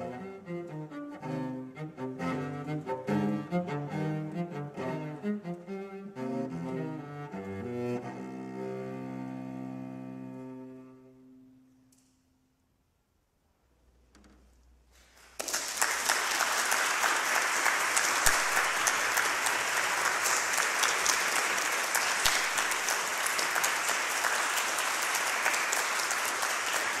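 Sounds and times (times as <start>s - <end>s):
audience applauding: 15.2s - 27.0s.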